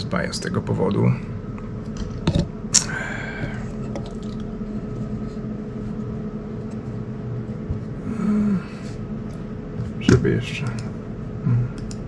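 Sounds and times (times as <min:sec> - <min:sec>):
faint constant hum: 0:00.0 - 0:12.0
person humming: 0:08.0 - 0:08.9, 0:11.4 - 0:12.0.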